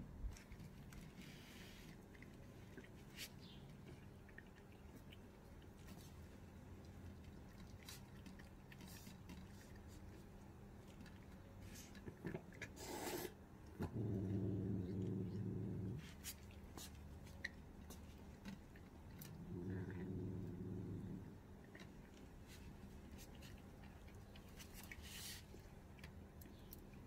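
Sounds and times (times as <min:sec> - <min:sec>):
cats chewing and licking: 0:00.0 - 0:27.0
low cat growl: 0:12.8 - 0:16.1, 0:19.3 - 0:21.4.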